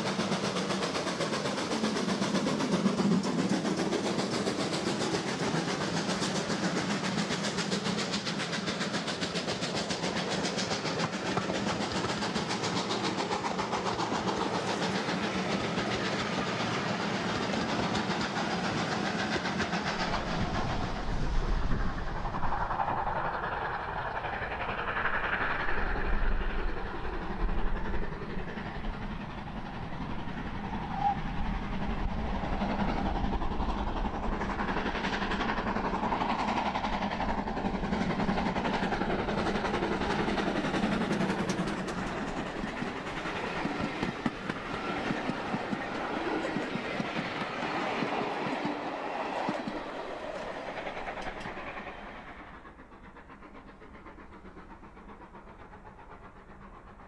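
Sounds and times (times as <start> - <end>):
steam locomotive passing: 0.0 - 57.0
wheels clicking over rail joints: 0.2 - 20.4, 34.2 - 55.8.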